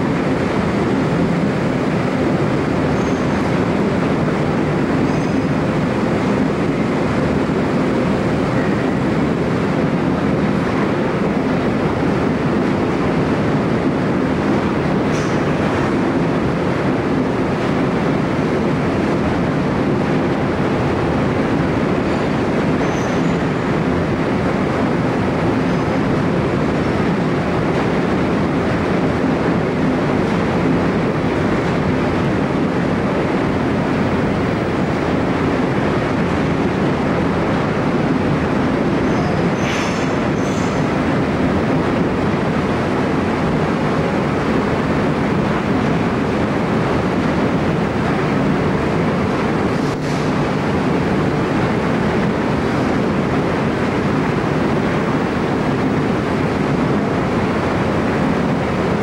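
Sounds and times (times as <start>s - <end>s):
low rumble of ship engines: 0.0s - 59.0s.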